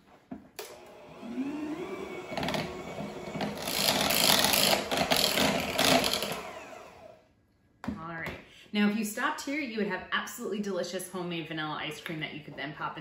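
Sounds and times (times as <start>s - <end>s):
electric hand mixer whining: 0.6s - 7.2s.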